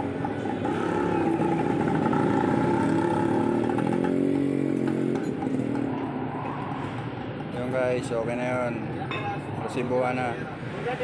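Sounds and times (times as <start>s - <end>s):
motorcycle engine running: 0.0s - 6.0s.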